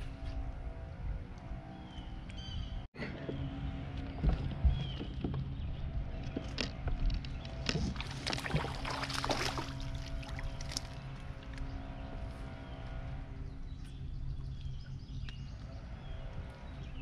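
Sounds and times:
steady low hum: 0:00.0 - 0:17.0
fish splashing at surface: 0:08.0 - 0:10.8.

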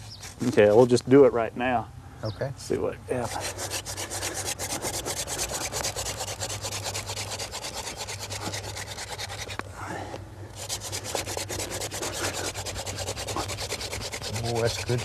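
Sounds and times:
palms rubbing on a spindle: 0:00.0 - 0:01.1, 0:03.1 - 0:09.7, 0:10.5 - 0:15.0
spindle grinding in wooden board: 0:03.2 - 0:09.7, 0:10.5 - 0:15.0.

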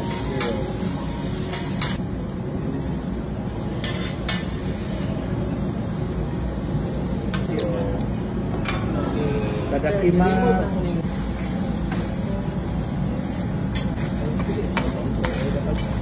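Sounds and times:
low background hum: 0:00.0 - 0:16.0
metal spatulas clinking on griddle: 0:03.8 - 0:04.6, 0:13.7 - 0:16.0.

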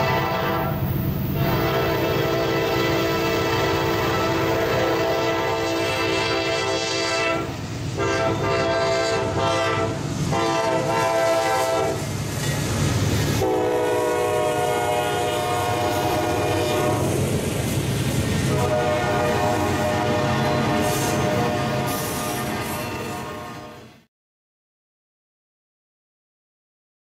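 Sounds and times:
locomotive air horn blasts: 0:00.0 - 0:12.0, 0:13.4 - 0:17.2, 0:18.4 - 0:24.0
locomotive engines rumbling: 0:00.0 - 0:23.9
train rolling: 0:00.0 - 0:24.0.

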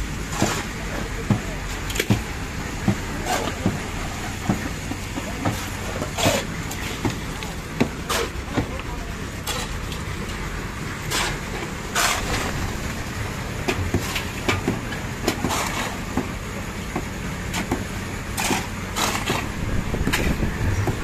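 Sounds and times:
engine hum: 0:00.0 - 0:21.0
shovels scraping wet concrete: 0:00.2 - 0:10.4, 0:11.0 - 0:16.4, 0:17.5 - 0:21.0.

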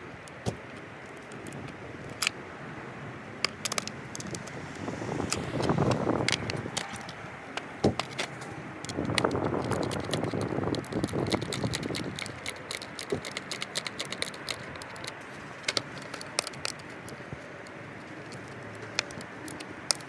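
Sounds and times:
skate tool metallic clicks: 0:00.2 - 0:02.4, 0:03.4 - 0:20.0.

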